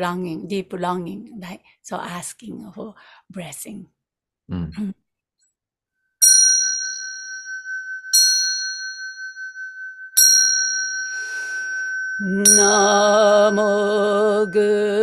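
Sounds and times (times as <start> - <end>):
small bell ringing: 6.2 - 15.0
person breathing: 11.1 - 12.0.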